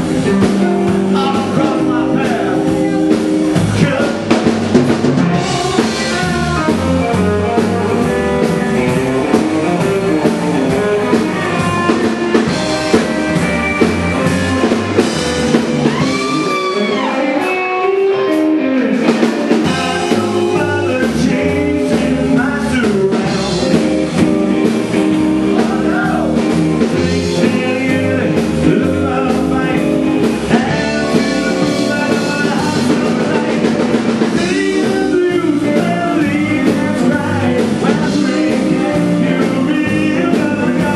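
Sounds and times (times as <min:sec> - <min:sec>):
drum kit: 0:00.0 - 0:40.9
electric guitars: 0:00.0 - 0:40.9
rockabilly band playing live: 0:00.0 - 0:40.9
upright bass: 0:00.0 - 0:40.9
lead guitar bending in pitch: 0:05.1 - 0:20.6.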